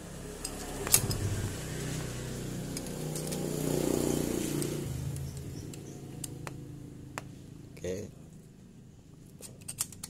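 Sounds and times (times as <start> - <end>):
passing vehicle engine hum: 0.0 - 7.8.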